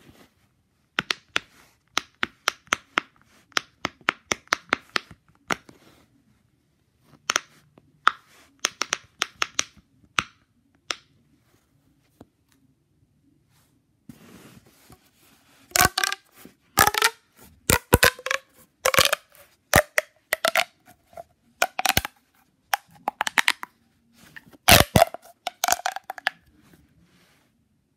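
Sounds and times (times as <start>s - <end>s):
plastic pop tube crackling: 7.2s - 11.1s, 15.7s - 26.5s.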